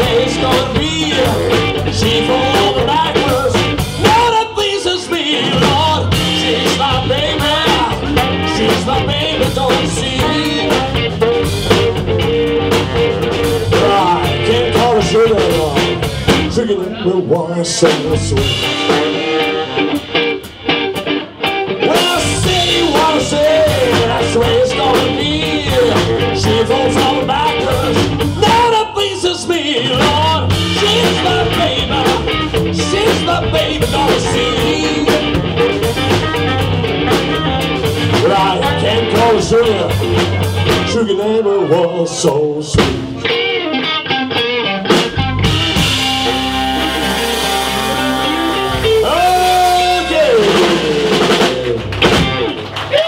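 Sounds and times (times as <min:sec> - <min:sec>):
man singing into a microphone: 0:00.0 - 0:11.3, 0:13.7 - 0:20.0, 0:21.8 - 0:36.6, 0:38.1 - 0:43.0, 0:48.8 - 0:51.7
drum kit: 0:00.0 - 0:41.4, 0:42.2 - 0:53.0
electric guitar: 0:00.0 - 0:53.0
saxophone: 0:45.7 - 0:51.8.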